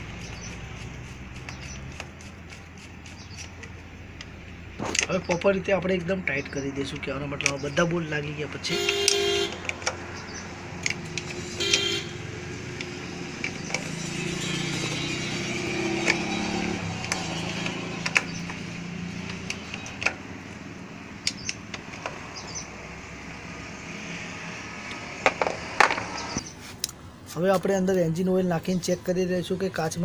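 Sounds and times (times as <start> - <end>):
traffic passing: 0.0 - 30.0
vehicle horn toots: 8.7 - 9.6, 11.5 - 12.3, 14.0 - 16.6
wrench clicking: 10.8 - 11.4.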